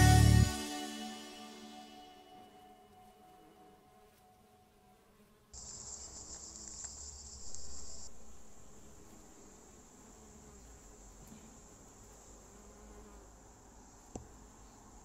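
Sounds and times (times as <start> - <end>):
steady high-pitched hiss: 0.0 - 15.0
honeybees buzzing: 3.0 - 14.8.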